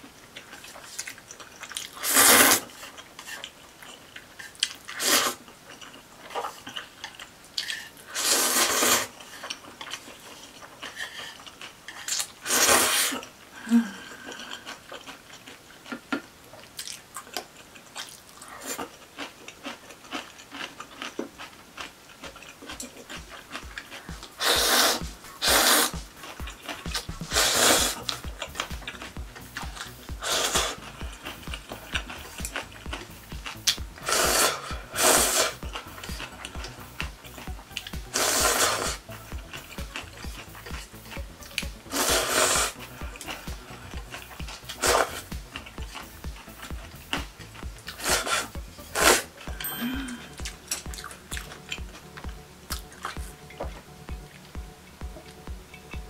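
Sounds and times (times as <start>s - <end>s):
chewing: 0.0s - 56.0s
noodle slurping: 0.5s - 13.3s, 22.6s - 49.4s.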